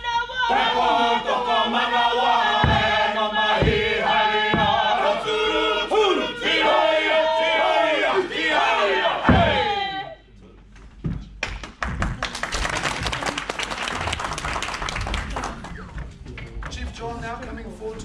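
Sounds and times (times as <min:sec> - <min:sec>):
group chanting in unison: 0:00.4 - 0:10.1
feet stamping: 0:02.5 - 0:05.5, 0:09.2 - 0:09.7, 0:10.8 - 0:12.2.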